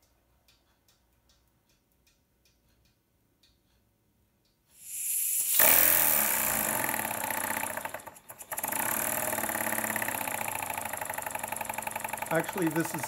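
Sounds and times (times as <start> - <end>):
air hissing: 4.7 - 13.0
model steam engine exhaust puffs: 4.7 - 13.0.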